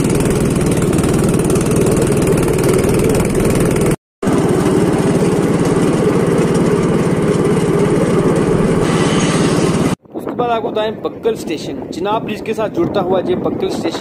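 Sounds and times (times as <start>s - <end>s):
small engine pulsing: 0.0s - 10.0s.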